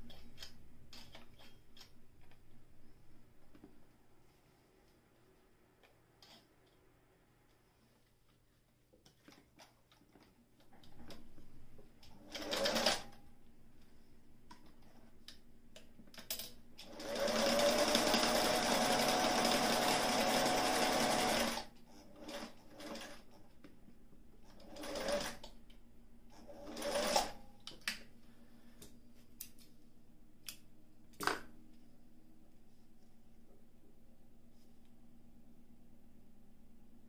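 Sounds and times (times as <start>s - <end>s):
sewing machine stitching: 12.2s - 13.1s, 16.8s - 23.2s, 24.5s - 25.5s, 26.4s - 27.4s.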